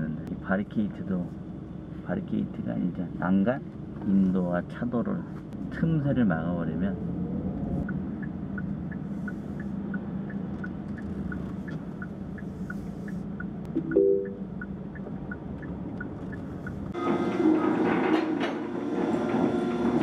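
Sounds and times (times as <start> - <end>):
car engine hum: 0.0 - 17.4
turn signal ticking: 7.8 - 17.0
brief tone: 13.7 - 14.5.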